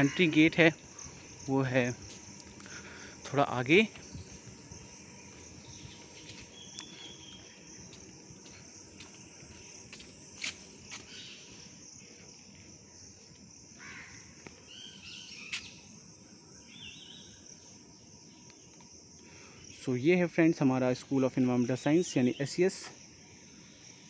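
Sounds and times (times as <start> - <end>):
footsteps on paving: 0.0 - 11.6, 15.5 - 15.8
insect chorus buzzing: 0.0 - 24.0
bird calls: 4.0 - 8.0, 10.9 - 11.7, 13.8 - 15.9.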